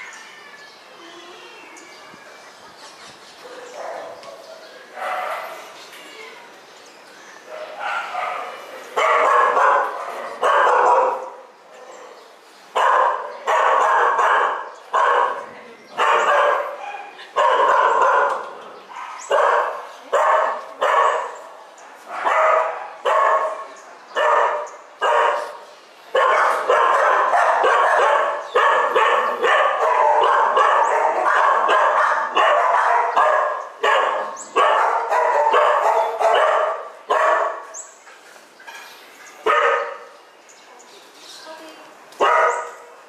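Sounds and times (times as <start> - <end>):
dogs barking: 3.4 - 5.8, 7.5 - 11.5, 12.7 - 38.0, 38.6 - 40.2, 42.2 - 43.0.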